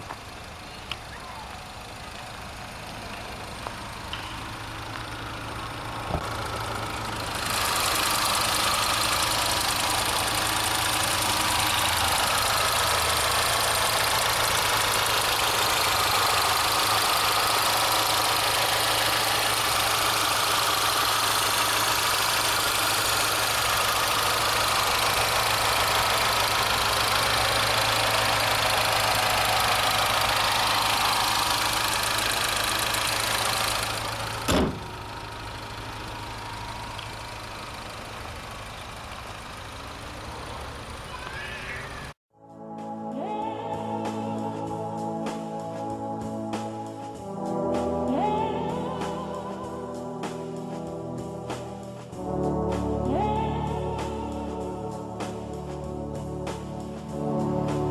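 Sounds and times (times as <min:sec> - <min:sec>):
car engine idling: 0:00.0 - 0:42.2.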